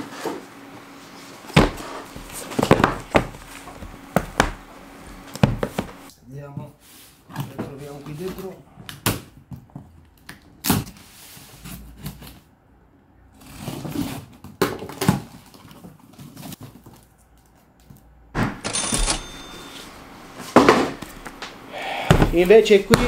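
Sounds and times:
contents rustling: 0:01.7 - 0:04.2.

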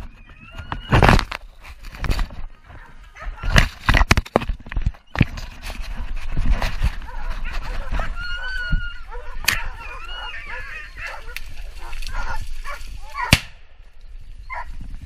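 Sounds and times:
dogs barking and yelping: 0:00.0 - 0:01.2, 0:02.6 - 0:03.8, 0:05.7 - 0:13.4, 0:14.4 - 0:14.8
sharp cracks: 0:13.2 - 0:13.7.

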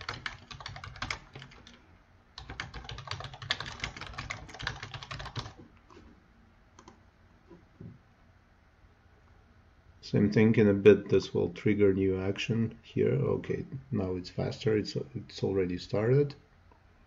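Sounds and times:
keyboard typing clicks: 0:00.0 - 0:01.8, 0:02.4 - 0:05.6, 0:06.8 - 0:07.0.

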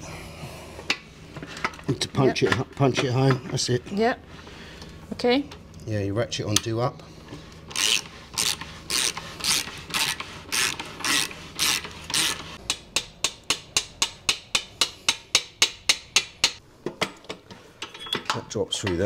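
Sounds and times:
hand ratchet clicking: 0:07.7 - 0:16.6.

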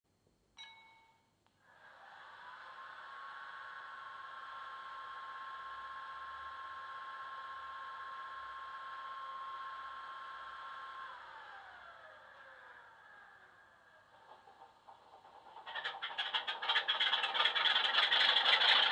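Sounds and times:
diesel locomotive whine: 0:11.2 - 0:18.9.

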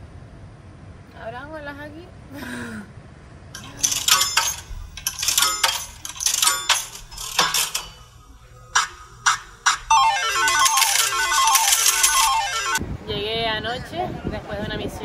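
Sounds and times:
coins dropping and clinking: 0:03.6 - 0:12.8.

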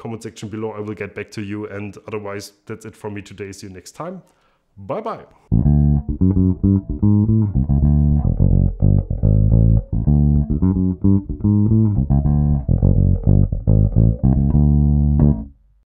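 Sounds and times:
electric bass played fingerstyle: 0:05.5 - 0:15.6.

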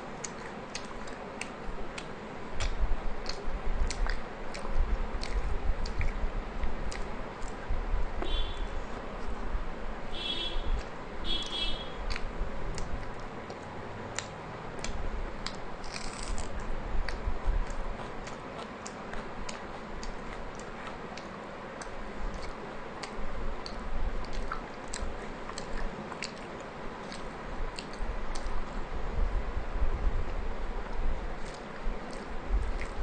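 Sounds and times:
person chewing: 0:00.2 - 0:06.2, 0:12.1 - 0:28.6, 0:31.4 - 0:33.0
mouth clicks and smacks: 0:00.2 - 0:07.6, 0:10.7 - 0:28.6, 0:30.3 - 0:33.0.

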